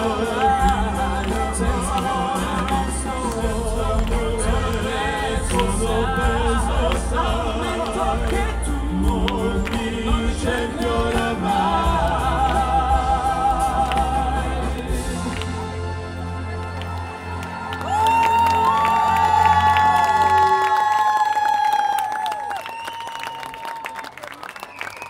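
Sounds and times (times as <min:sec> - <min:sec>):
vocal trio singing: 0:00.0 - 0:17.7
amplified band with heavy bass: 0:00.0 - 0:18.0.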